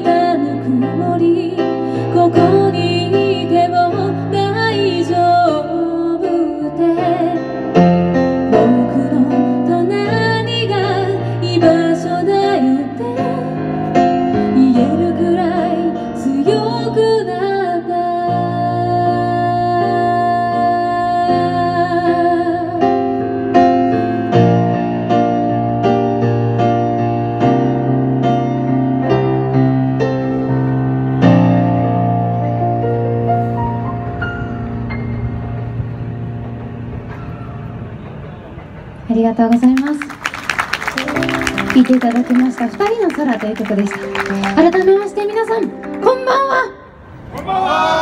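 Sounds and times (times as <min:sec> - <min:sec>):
woman singing: 0:00.0 - 0:07.5, 0:08.5 - 0:13.8, 0:14.4 - 0:22.8
electric keyboard chords: 0:00.0 - 0:47.3.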